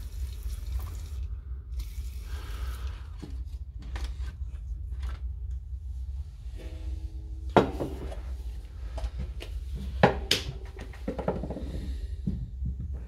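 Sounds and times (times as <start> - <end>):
steady low hum: 0.0 - 13.0
tool parts knocking on workbench: 10.0 - 12.4.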